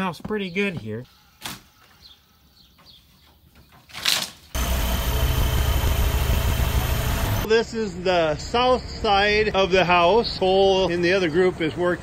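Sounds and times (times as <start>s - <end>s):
engine running steadily: 4.6s - 7.5s.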